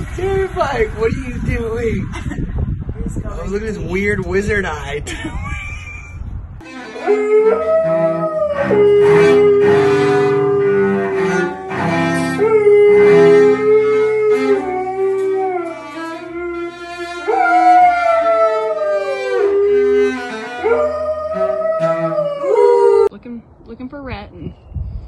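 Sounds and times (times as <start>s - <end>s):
cello bowed notes: 6.6s - 23.1s
dog howling: 7.0s - 23.1s.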